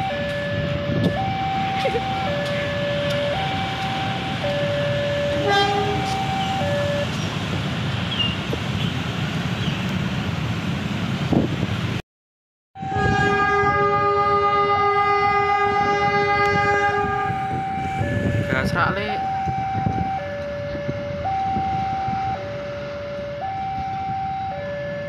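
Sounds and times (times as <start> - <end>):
locomotive horn: 0.0 - 7.1, 12.8 - 18.5
two-tone crossing alarm: 0.0 - 7.2, 12.8 - 25.0
motorcycles idling: 0.0 - 7.4.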